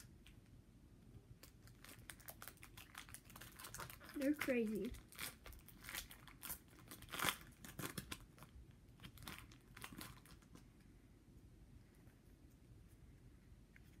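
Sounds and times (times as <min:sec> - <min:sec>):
foil wrapper crinkling: 0:01.4 - 0:10.6.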